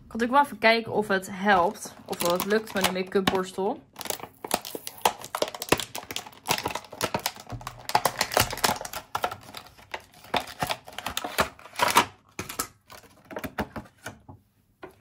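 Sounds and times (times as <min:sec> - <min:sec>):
packaging clicking and rustling: 0:01.6 - 0:14.2.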